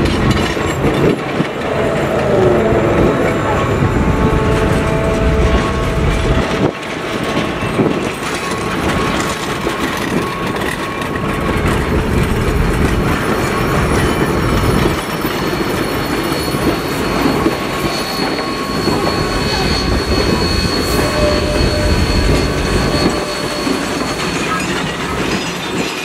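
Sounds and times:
train wheels clattering on rails: 0.0 - 26.0
high-pitched wheel squeal: 0.9 - 6.8, 8.3 - 25.7.

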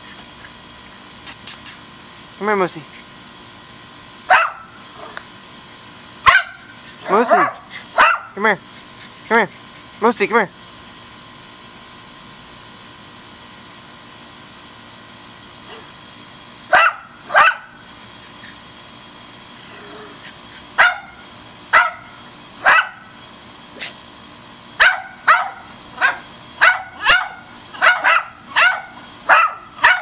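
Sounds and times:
dogs barking: 4.3 - 5.2, 6.2 - 8.4, 16.7 - 17.8, 20.6 - 23.1, 24.8 - 30.0.

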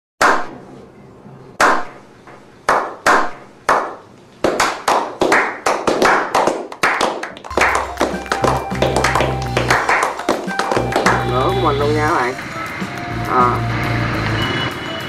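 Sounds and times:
hand clapping: 2.7 - 13.1.

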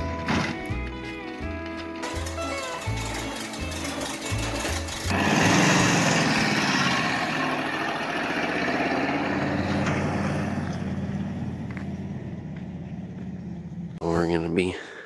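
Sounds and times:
truck engine pulling away: 2.0 - 14.0.

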